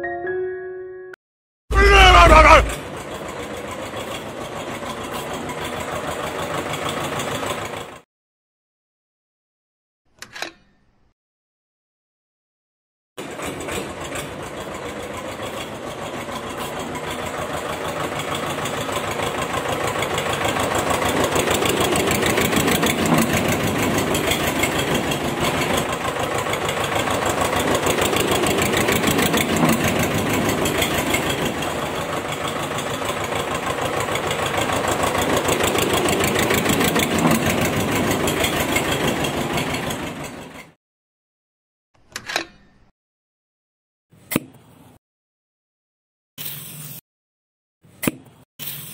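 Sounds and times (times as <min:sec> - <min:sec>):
tractor engine chugging: 0:01.8 - 0:08.0, 0:13.2 - 0:40.6.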